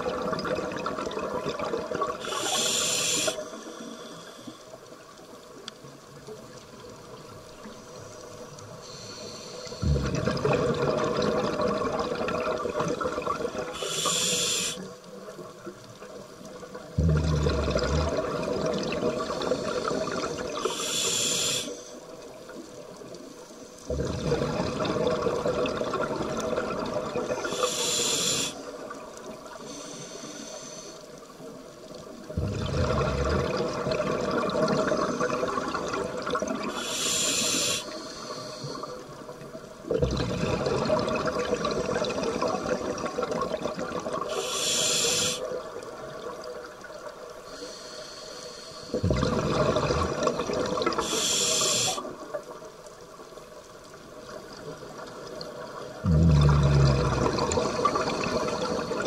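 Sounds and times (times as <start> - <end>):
diver breathing through regulator: 2.2 - 4.7, 8.8 - 10.2, 13.7 - 14.9, 19.3 - 22.0, 27.4 - 28.6, 29.6 - 31.1, 36.7 - 39.0, 44.3 - 45.5, 47.5 - 49.4, 51.0 - 52.1.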